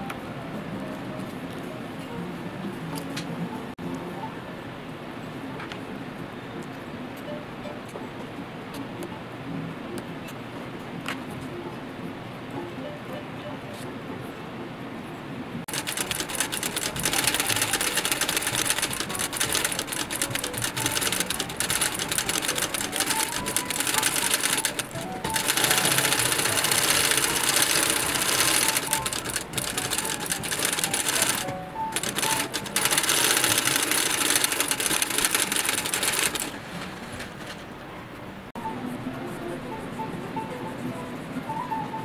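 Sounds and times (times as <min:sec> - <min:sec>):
sewing machine stitching leather: 0:15.7 - 0:37.6.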